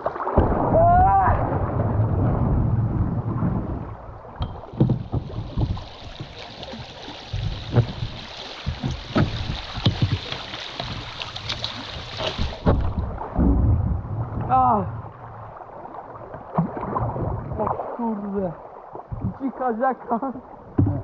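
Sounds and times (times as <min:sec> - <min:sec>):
water splashing and dripping: 0:00.0 - 0:21.0
low rumble: 0:00.4 - 0:06.1, 0:12.6 - 0:17.8
paddle knocking against hull: 0:04.4 - 0:13.8, 0:20.7 - 0:21.0.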